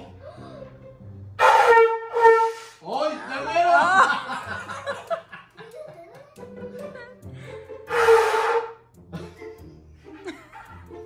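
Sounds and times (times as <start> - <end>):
horn-like tone blown by mouth: 1.4 - 2.8, 7.9 - 8.8.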